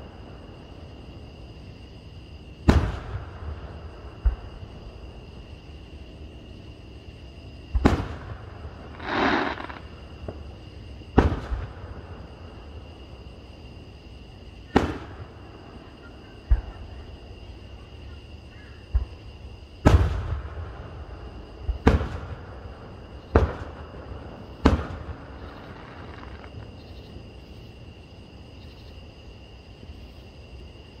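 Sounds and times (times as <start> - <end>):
fireworks booming: 2.6 - 5.2, 7.7 - 12.8, 14.7 - 17.0, 18.8 - 26.8
insect chirring: 8.5 - 11.2, 22.9 - 31.0.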